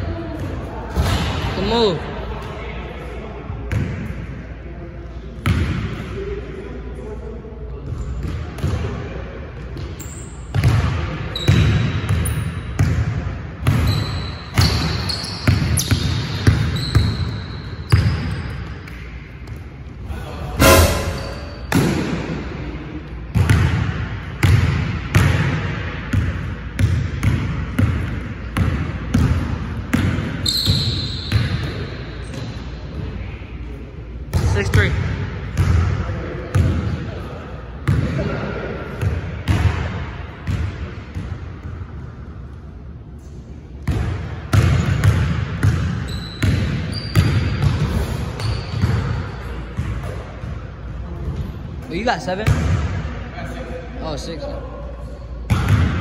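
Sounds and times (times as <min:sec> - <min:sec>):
sneaker squeaks: 0:09.8 - 0:10.7, 0:11.3 - 0:12.8, 0:13.7 - 0:19.6, 0:20.6 - 0:21.9, 0:30.4 - 0:32.6, 0:45.7 - 0:50.2
sneaker squeak on wood: 0:13.8 - 0:18.6, 0:30.4 - 0:31.4, 0:46.0 - 0:47.6, 0:48.3 - 0:48.9.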